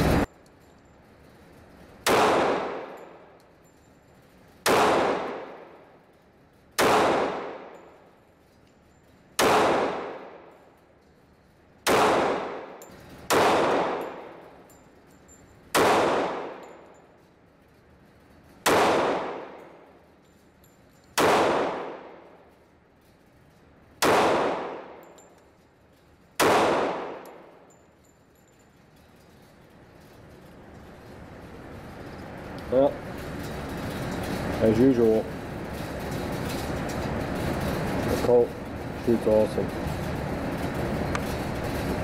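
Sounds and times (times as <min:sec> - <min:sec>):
pistol shots echoing: 0:02.0 - 0:03.2, 0:04.6 - 0:05.8, 0:06.8 - 0:07.8, 0:09.4 - 0:10.5, 0:11.8 - 0:14.4, 0:15.8 - 0:16.7, 0:18.6 - 0:19.8, 0:21.2 - 0:22.2, 0:24.0 - 0:25.0, 0:26.4 - 0:27.6.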